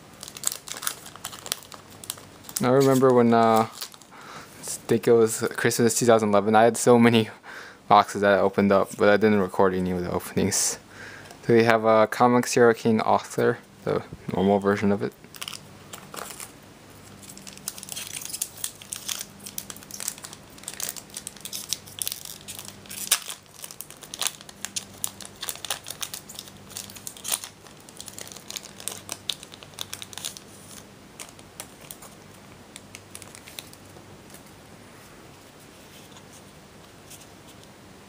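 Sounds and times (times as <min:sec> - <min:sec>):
foil pack tearing and crinkling: 0:00.2 - 0:04.1, 0:15.3 - 0:16.5, 0:17.2 - 0:33.8.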